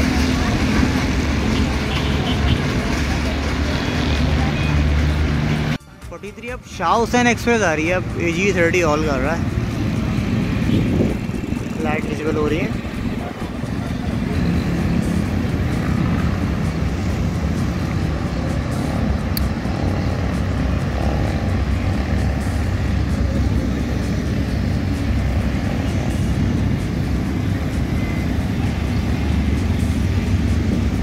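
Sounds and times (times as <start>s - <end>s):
diesel locomotive engine drone: 0.0s - 31.0s.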